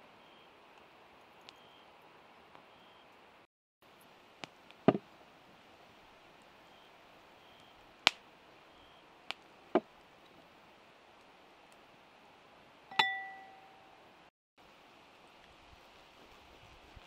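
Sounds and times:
glass jars tapping bowl: 0:12.9 - 0:13.8
ringing glass clink: 0:12.9 - 0:14.0.

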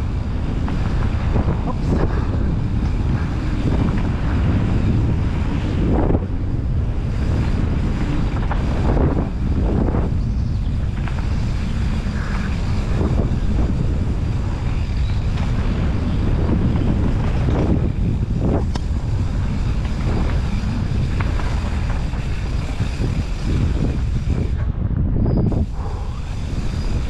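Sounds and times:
bike rattling over bumps: 0:00.0 - 0:27.0
bike tyre rumble: 0:00.0 - 0:27.0
wind rushing over microphone: 0:00.0 - 0:27.0.

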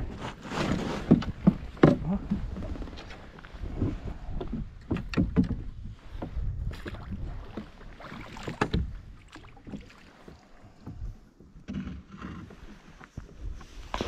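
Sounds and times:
water splashing against boat hull: 0:00.6 - 0:14.0.

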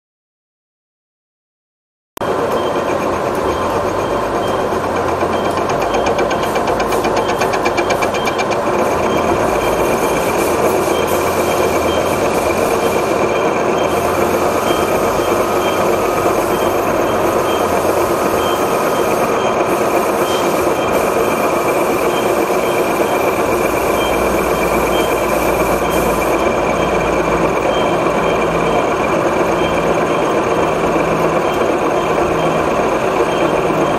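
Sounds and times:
high ringing tone: 0:02.2 - 0:33.9
milling cutter machining metal: 0:02.2 - 0:33.9
pulsing high tone: 0:02.2 - 0:33.9.

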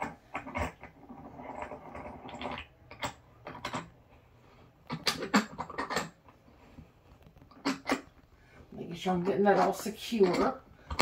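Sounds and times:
soft rustle: 0:06.2 - 0:10.9.

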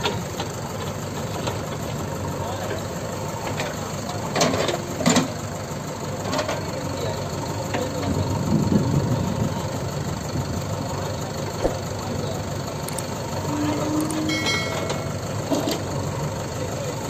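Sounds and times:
diesel engines running: 0:00.0 - 0:17.0.

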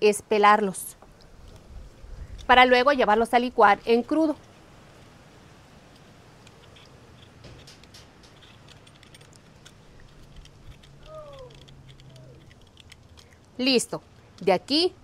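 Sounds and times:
peeler scraping: 0:06.5 - 0:13.5.

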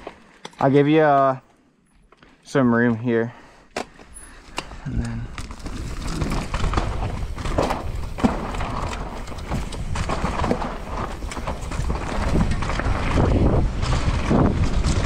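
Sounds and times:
bike tyres knocking and rattling on dirt: 0:03.8 - 0:15.0
wind rumble on microphone: 0:04.9 - 0:15.0.

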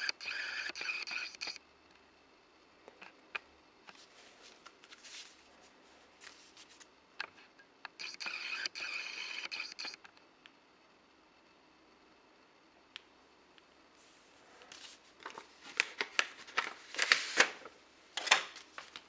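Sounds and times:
packaging rubbing and sliding: 0:14.7 - 0:17.6.

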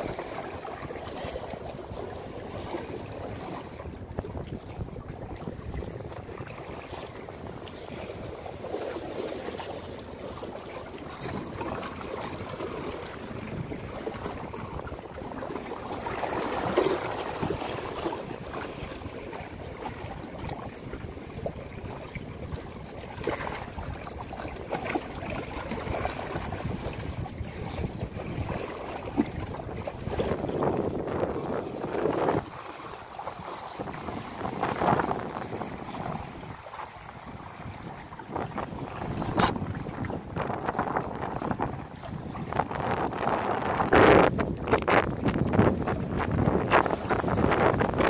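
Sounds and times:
wind across microphone: 0:00.0 - 0:08.5, 0:11.0 - 0:48.0
waves splashing against rocks: 0:00.0 - 0:48.0.

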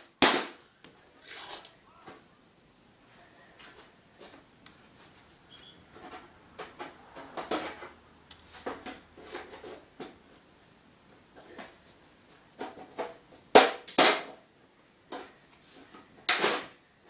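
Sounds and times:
small parts clicking and scraping: 0:01.2 - 0:01.8.

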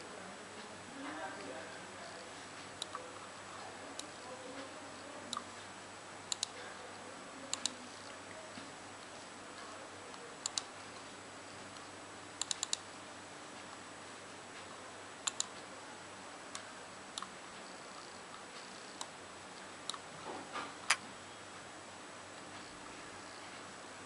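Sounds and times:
computer mouse clicking: 0:02.6 - 0:03.1, 0:06.3 - 0:06.6, 0:07.5 - 0:08.1, 0:10.4 - 0:10.7, 0:11.7 - 0:12.9, 0:15.2 - 0:15.7, 0:16.5 - 0:19.2.

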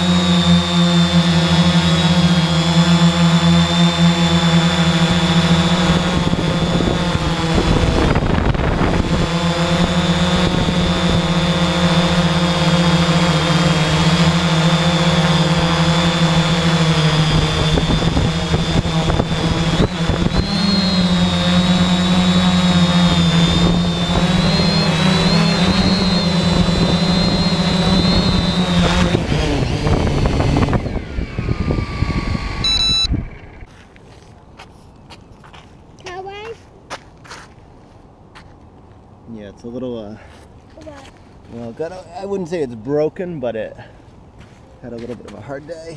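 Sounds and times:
drone motors buzzing whine: 0:00.0 - 0:34.1.

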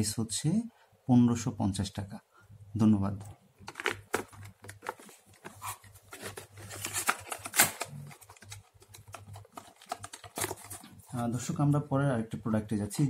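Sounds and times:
plastic blister packs crinkling: 0:03.6 - 0:11.0.

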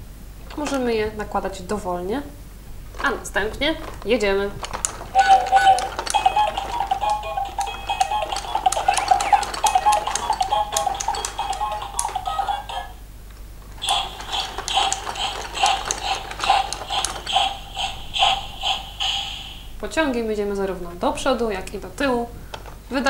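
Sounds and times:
plastic toy clicking and rattling: 0:00.5 - 0:00.8, 0:03.0 - 0:12.9, 0:13.8 - 0:18.8
toy train electronic tune: 0:05.1 - 0:13.0, 0:13.8 - 0:19.8.

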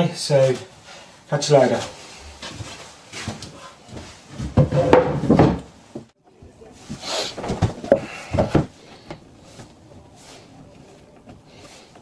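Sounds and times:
wooden boards knocking and scraping: 0:04.4 - 0:06.1, 0:07.4 - 0:09.8.

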